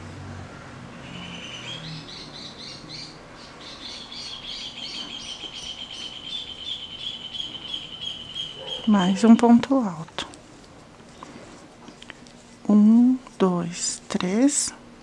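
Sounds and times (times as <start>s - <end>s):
bird chirping and trilling: 0.9s - 9.3s.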